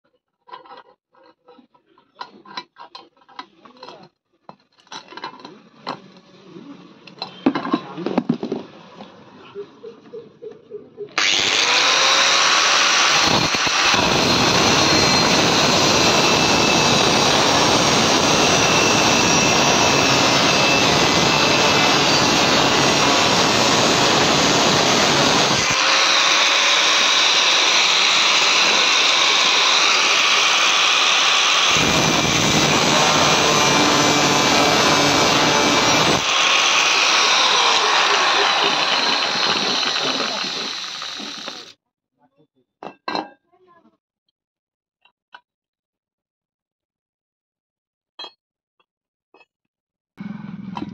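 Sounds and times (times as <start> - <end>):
angle grinder motor whine: 11.2 - 41.7
grinder cutting steel: 11.2 - 41.7.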